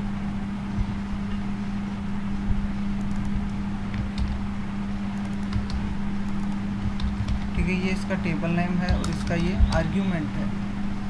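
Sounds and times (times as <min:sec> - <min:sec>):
low electrical hum: 0:00.0 - 0:11.0
keyboard key clicks: 0:08.8 - 0:09.9.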